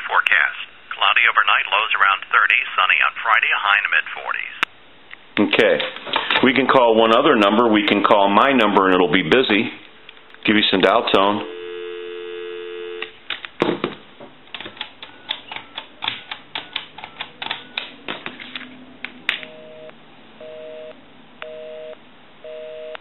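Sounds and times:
pulsing busy signal: 11.4 - 13.0, 19.5 - 23.0
telephone dial tone: 11.4 - 13.2, 19.4 - 23.0
keypad key presses clicking: 14.5 - 18.2.

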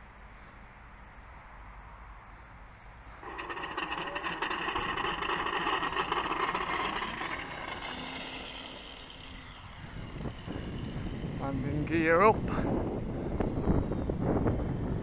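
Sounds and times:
model plane electric motor whine: 3.2 - 12.3.

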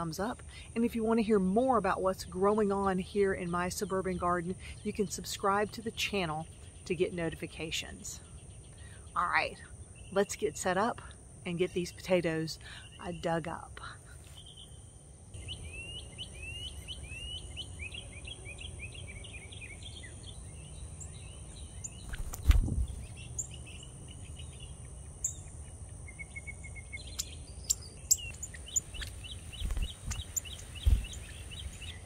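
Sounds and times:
songbird chirping: 0.0 - 32.0
high insect buzz: 14.4 - 32.0.

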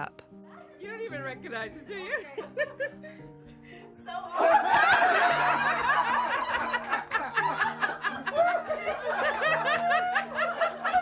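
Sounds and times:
background music low notes: 0.0 - 11.0
people laughing and squealing: 4.4 - 11.0.

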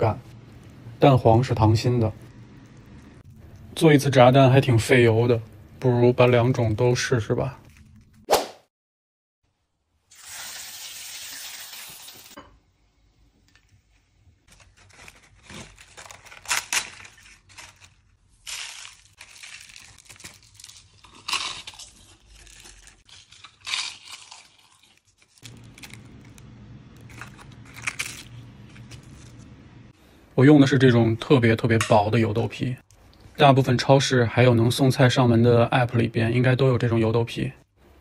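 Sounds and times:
low steady hum: 0.0 - 8.2, 19.4 - 38.0
tofu skin sizzling in hot oil: 10.1 - 12.4
crackling crunches of fried tofu: 14.5 - 29.6.

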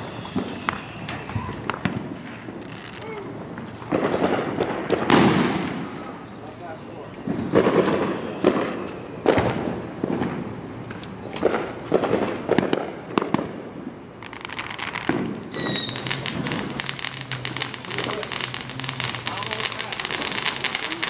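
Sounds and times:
high whistle: 0.0 - 1.7, 6.8 - 9.5, 15.5 - 16.4
fireworks bangs: 0.0 - 21.0
fireworks crackling: 0.0 - 21.0.

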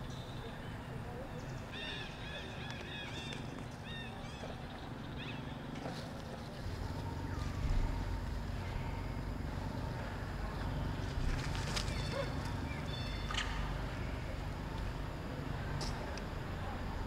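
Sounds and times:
high chirping animal calls: 0.0 - 5.6.

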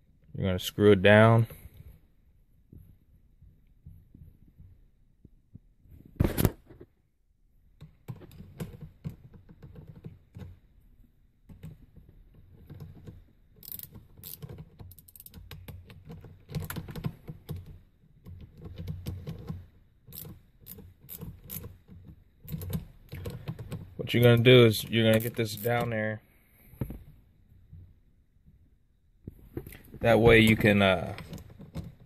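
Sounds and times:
small metal parts clicking: 13.6 - 17.1, 20.1 - 21.8.

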